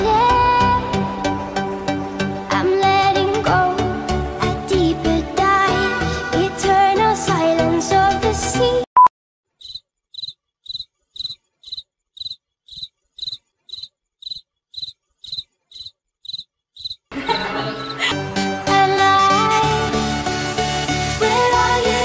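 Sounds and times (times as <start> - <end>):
background music: 0.0 - 8.8, 17.1 - 22.0.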